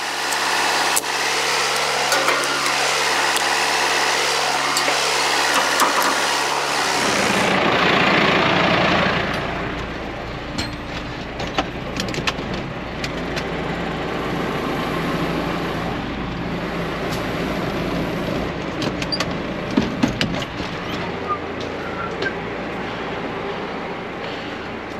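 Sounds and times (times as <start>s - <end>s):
tractor engine running: 0.0s - 24.9s
sharp clicks and knocks: 18.6s - 21.0s.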